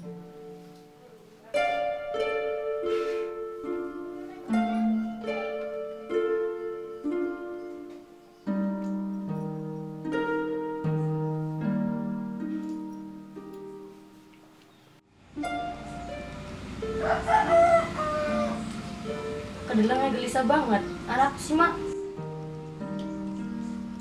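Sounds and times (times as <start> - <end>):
plucked string melody: 0.0 - 24.0.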